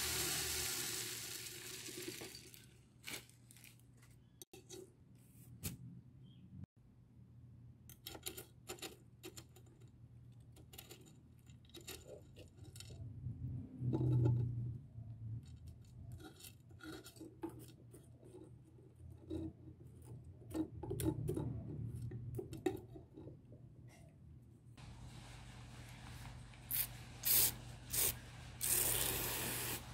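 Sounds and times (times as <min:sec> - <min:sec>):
pellets rattling against glass: 0:00.5 - 0:03.7.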